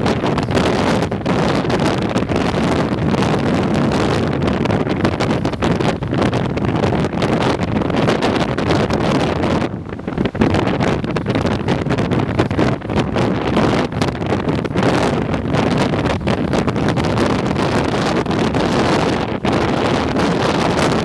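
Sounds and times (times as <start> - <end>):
heavy surf breaking: 0.0 - 21.0
storm wind buffeting microphone: 0.0 - 21.0.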